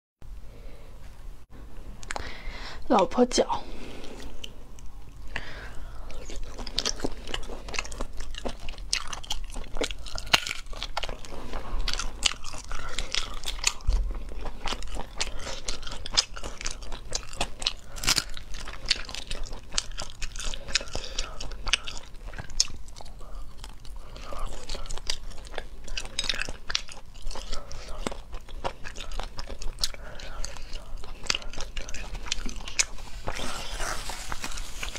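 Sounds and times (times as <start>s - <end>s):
chewing with wet smacks: 4.2s - 34.9s.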